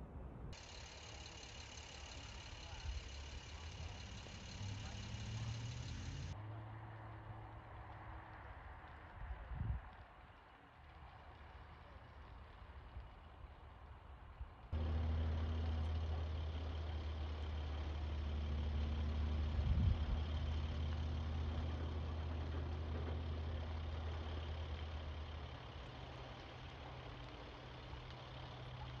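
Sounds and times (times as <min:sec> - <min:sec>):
large vehicle engine idling: 0:00.6 - 0:06.4, 0:14.7 - 0:29.0.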